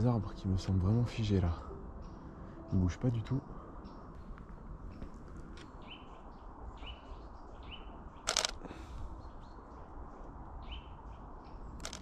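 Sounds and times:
camera shutter clicks: 0:08.3 - 0:08.6, 0:11.8 - 0:12.0.

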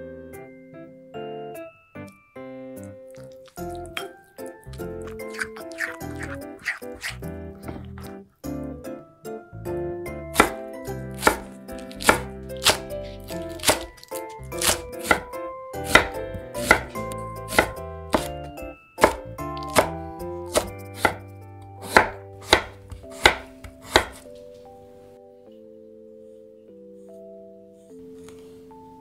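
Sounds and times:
knife chopping on wooden board: 0:10.3 - 0:18.4, 0:19.0 - 0:21.2, 0:21.8 - 0:24.3.

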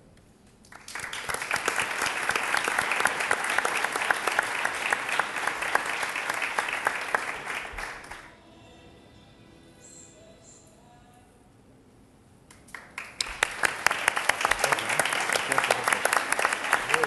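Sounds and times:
audience applauding: 0:00.7 - 0:08.3, 0:12.5 - 0:17.0.

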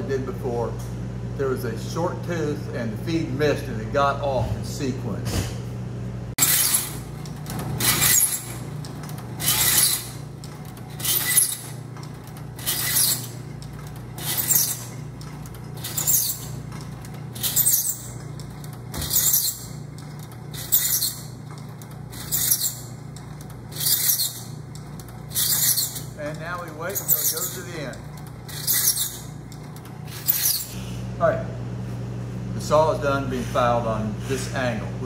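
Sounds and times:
file rasping across saw teeth: 0:09.4 - 0:10.2, 0:12.6 - 0:13.4, 0:14.2 - 0:15.0, 0:15.8 - 0:16.6, 0:17.4 - 0:18.2, 0:19.0 - 0:19.7, 0:20.5 - 0:21.3, 0:22.1 - 0:22.9, 0:23.7 - 0:24.6, 0:25.3 - 0:26.2, 0:26.9 - 0:27.8, 0:28.5 - 0:29.2.

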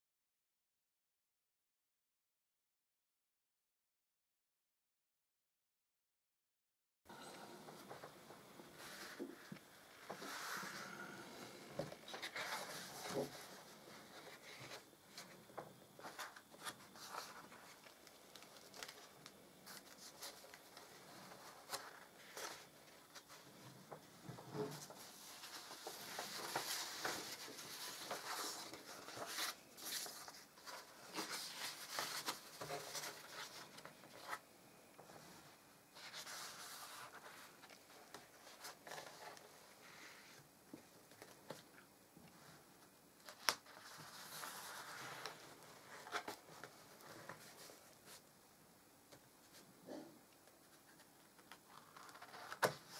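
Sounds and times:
album pages turning: 0:07.2 - 0:34.4, 0:36.0 - 0:41.8, 0:43.2 - 0:48.2, 0:50.5 - 0:52.9.

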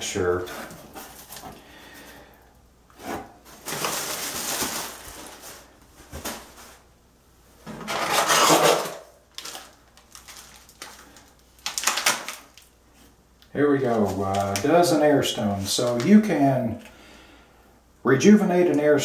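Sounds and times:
plastic packing material rustling: 0:00.4 - 0:01.6, 0:03.0 - 0:06.9, 0:07.7 - 0:12.8, 0:13.7 - 0:16.8.

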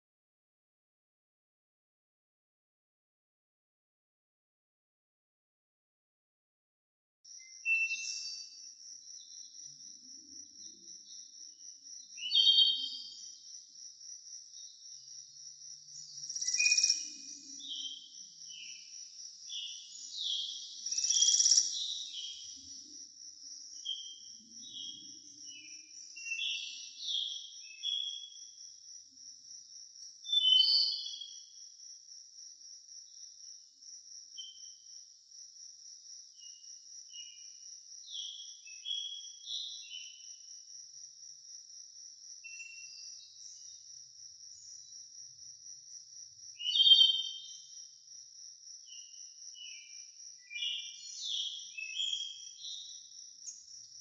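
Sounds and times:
bird chirps: 0:07.4 - 0:08.6, 0:12.2 - 0:13.4, 0:15.9 - 0:23.0, 0:23.7 - 0:28.5, 0:30.3 - 0:31.4, 0:42.5 - 0:43.8, 0:46.6 - 0:47.7, 0:48.9 - 0:53.9
insect trilling: 0:16.2 - 0:17.6, 0:20.4 - 0:22.4
loud bird calls: 0:19.5 - 0:22.6.

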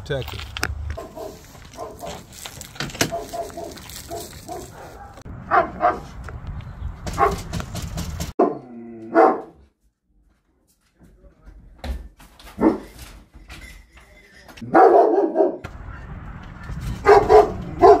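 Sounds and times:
dogs barking: 0:01.0 - 0:02.3, 0:03.0 - 0:06.2, 0:07.1 - 0:07.5, 0:08.4 - 0:09.6, 0:12.6 - 0:12.9, 0:14.6 - 0:16.1, 0:17.0 - 0:18.0.

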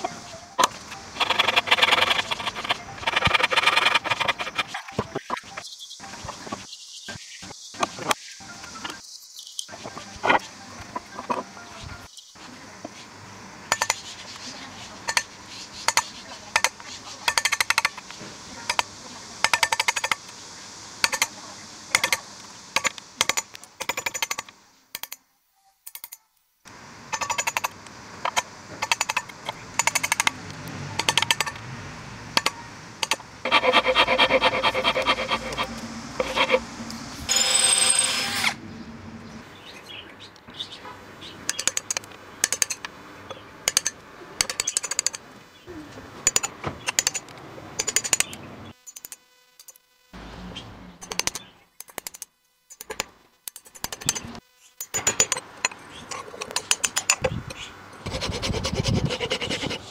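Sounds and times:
high-pitched squeak: 0:33.5 - 0:38.7.

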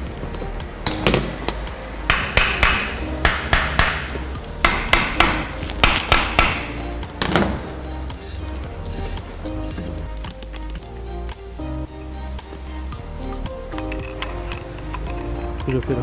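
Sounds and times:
background music: 0:00.0 - 0:16.0
hammer tapping on steel: 0:02.1 - 0:06.8.

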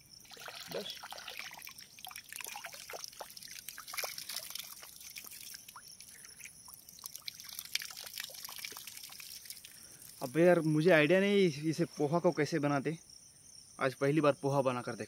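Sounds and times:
water trickling and dripping: 0:00.0 - 0:10.9.

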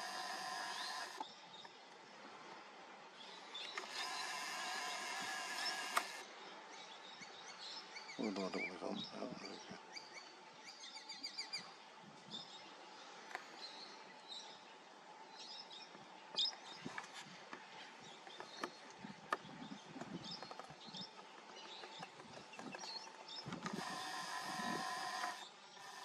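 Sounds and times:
bird trill: 0:00.0 - 0:01.2
birds chirping: 0:00.0 - 0:26.0
sharp clicks: 0:03.7 - 0:06.2
faint steady hum: 0:22.0 - 0:26.0.

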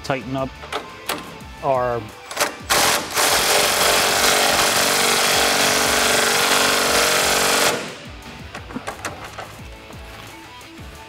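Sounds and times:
impact wrench hammering: 0:02.3 - 0:08.1.

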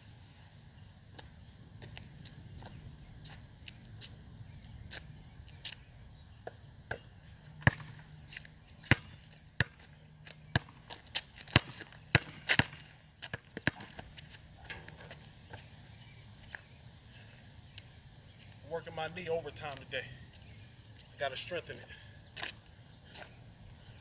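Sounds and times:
basketball bouncing on asphalt: 0:06.4 - 0:14.4.

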